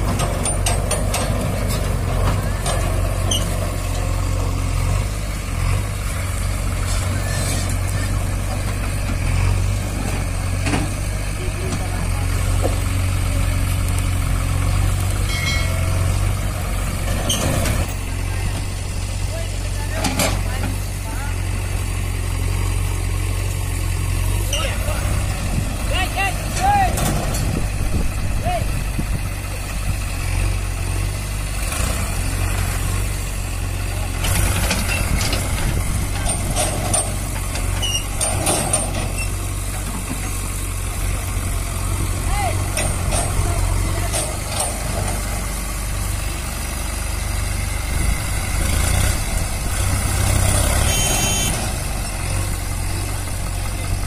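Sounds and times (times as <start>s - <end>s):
diesel engines running: 0.0s - 54.0s
high metallic clink: 15.2s - 16.6s.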